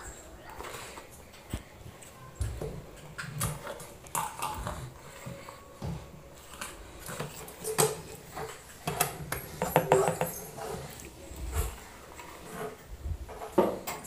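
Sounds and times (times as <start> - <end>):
spoon scraping a ceramic bowl: 7.1 - 11.1.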